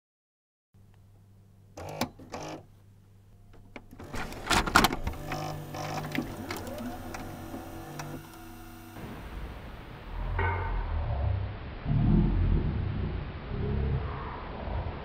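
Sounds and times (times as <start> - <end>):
low hum: 3.1 - 15.0
cassette recorder clunking: 3.6 - 8.5
motor whirring: 4.0 - 9.0.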